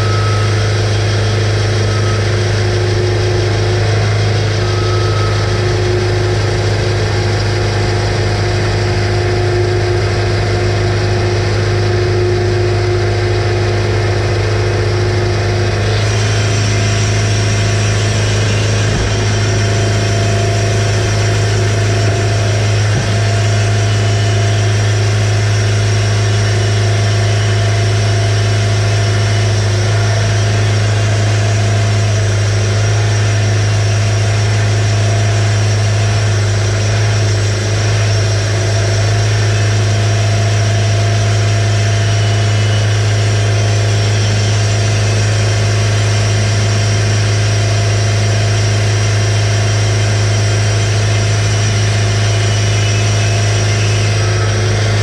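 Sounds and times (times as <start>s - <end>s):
sawmill engine running: 0.0s - 55.0s.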